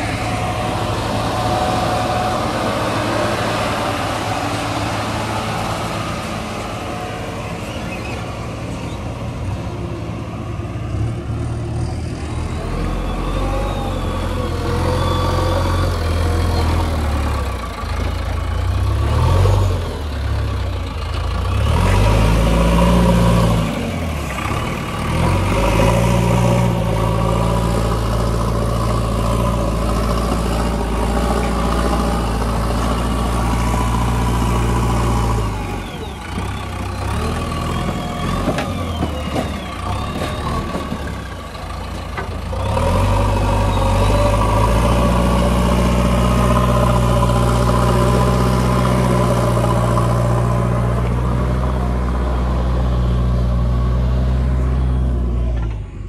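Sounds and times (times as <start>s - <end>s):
diesel engine revving under load: 0.0s - 56.0s.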